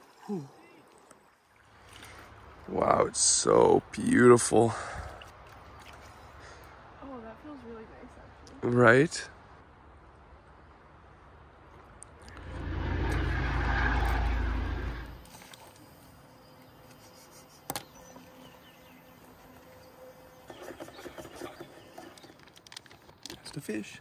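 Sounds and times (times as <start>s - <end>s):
vehicle passing: 12.3s - 15.3s.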